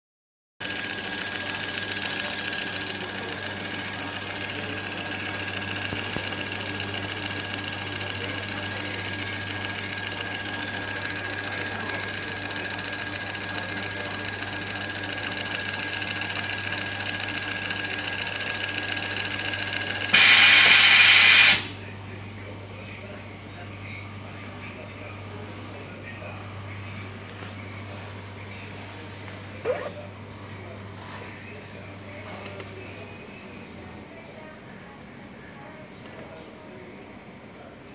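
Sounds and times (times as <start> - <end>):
label printer whining: 0.6 - 21.8
loud burst of printer noise: 0.6 - 21.8.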